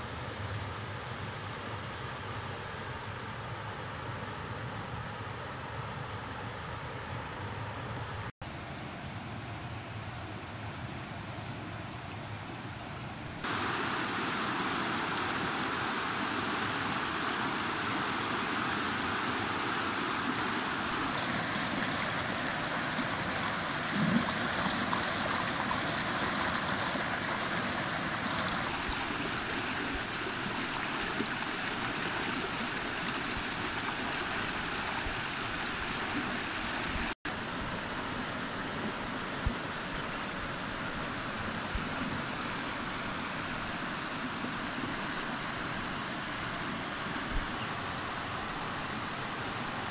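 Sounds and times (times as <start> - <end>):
stream rushing over rocks: 13.2 - 49.9.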